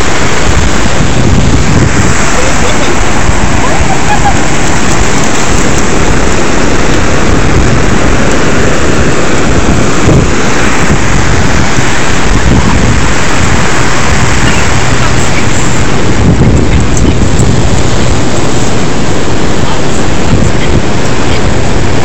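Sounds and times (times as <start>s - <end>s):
ocean surf breaking: 0.0s - 22.0s
wind on microphone: 0.0s - 22.0s.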